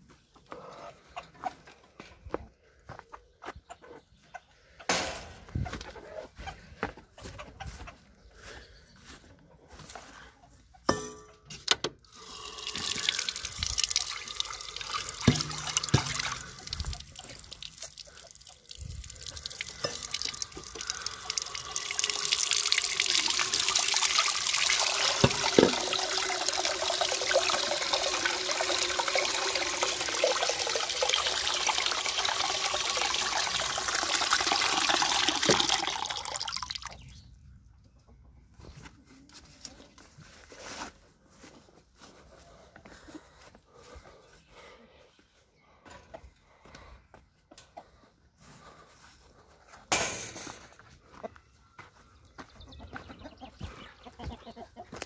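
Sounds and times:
water pouring into metal pot: 12.1s - 37.0s.

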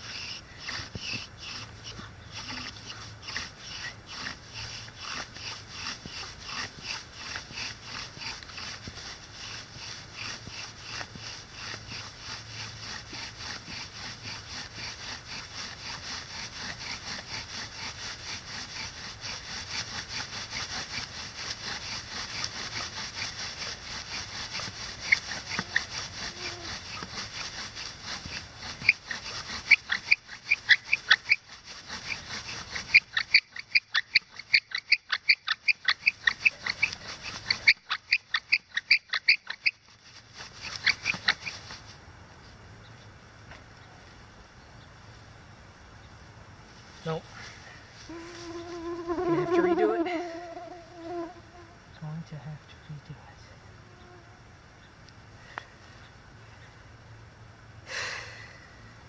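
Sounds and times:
sharp squeaks: 0.0s - 8.8s, 24.5s - 27.5s, 28.2s - 41.8s
wooden spindle rasping: 0.0s - 42.0s, 47.9s - 51.7s.

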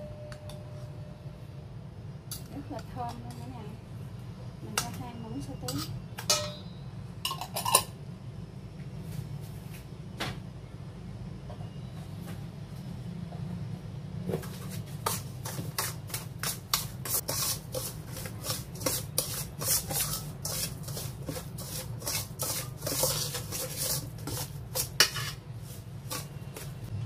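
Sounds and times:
metal spoon scraping a bowl: 5.6s - 6.7s, 14.5s - 26.9s.

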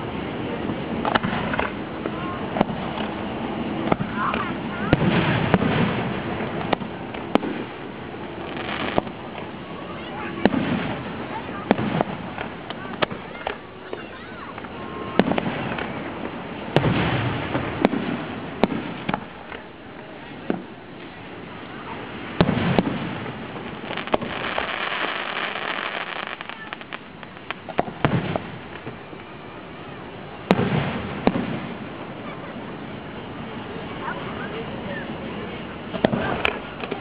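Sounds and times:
firework shells bursting: 1.0s - 29.4s.

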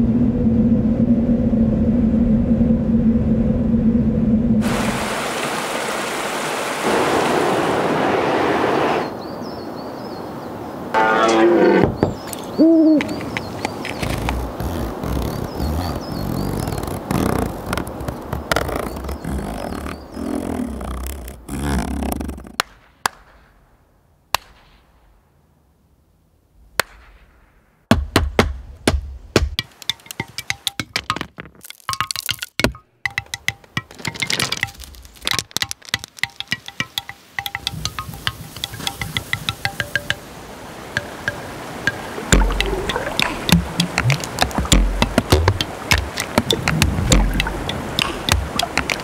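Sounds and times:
waterfall rushing: 4.6s - 9.1s, 34.0s - 49.0s
sharp loud knocks: 41.0s - 49.0s.

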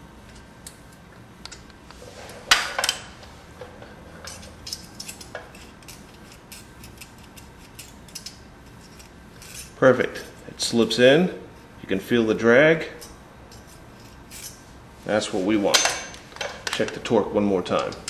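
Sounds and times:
metal tools clinking: 1.5s - 10.4s, 13.0s - 14.6s, 15.7s - 18.0s.

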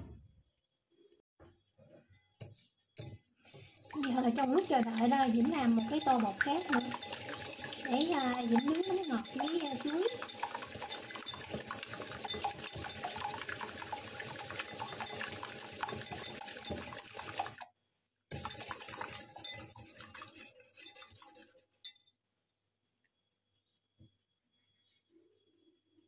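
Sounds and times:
whisk clicking against bowl: 3.0s - 17.7s, 18.3s - 22.0s
liquid sloshing: 3.4s - 17.7s, 18.3s - 21.7s.

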